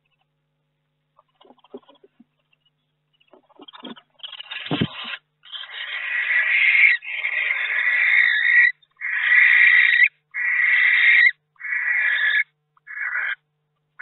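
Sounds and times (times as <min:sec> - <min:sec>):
owl rasping hisses: 0:03.4 - 0:13.4.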